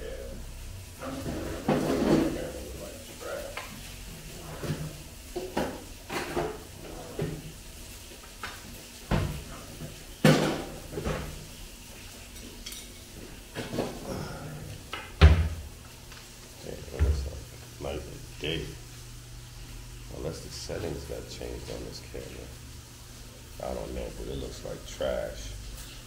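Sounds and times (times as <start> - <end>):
cupboard door banging shut: 15.2 - 15.6.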